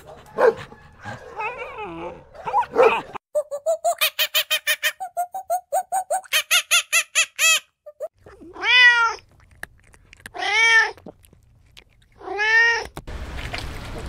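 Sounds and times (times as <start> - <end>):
cat meowing: 8.3 - 9.3, 10.3 - 11.0.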